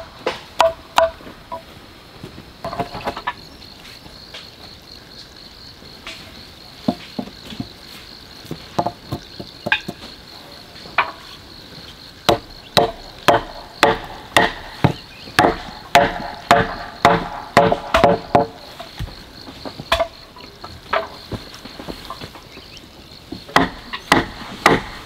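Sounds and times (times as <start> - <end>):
blade chopping wood: 12.3 - 19.1, 23.5 - 25.0.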